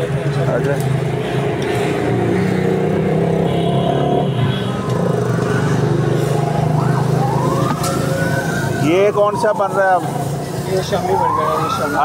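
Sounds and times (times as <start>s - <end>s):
siren rising in pitch: 3.3s - 12.0s.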